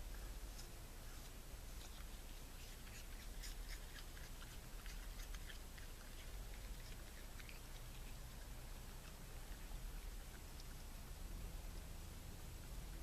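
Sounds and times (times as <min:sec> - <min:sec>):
raccoon munching: 0:00.0 - 0:13.0.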